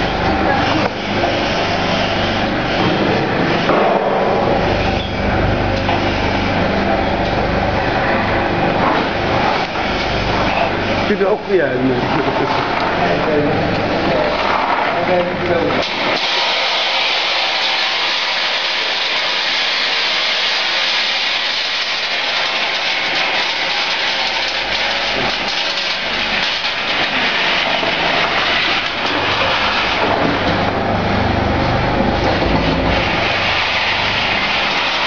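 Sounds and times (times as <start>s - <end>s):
machine running: 0.0s - 35.0s
peanuts rattling in roaster drum: 16.2s - 30.7s.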